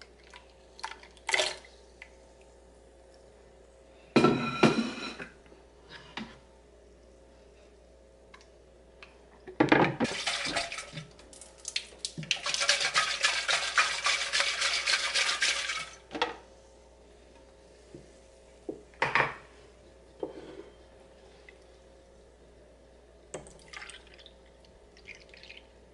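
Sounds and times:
water sloshing in blender jug: 10.0s - 16.0s.

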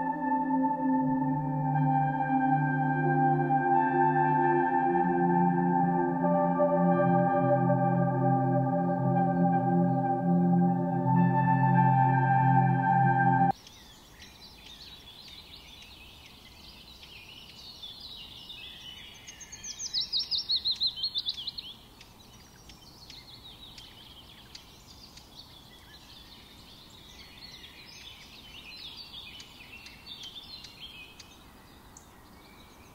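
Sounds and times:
small birds chirping: 13.5s - 32.9s.

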